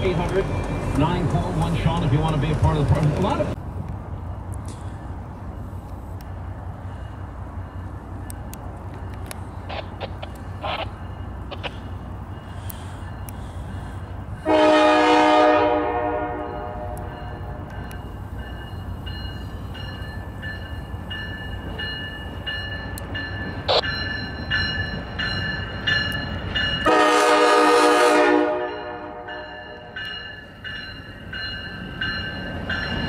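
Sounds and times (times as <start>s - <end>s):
train horn blasts: 14.4s - 17.6s, 26.8s - 29.9s.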